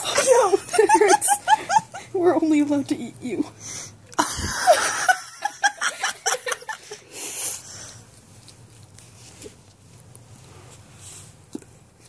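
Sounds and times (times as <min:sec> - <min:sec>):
person laughing breathily: 0:04.2 - 0:07.4.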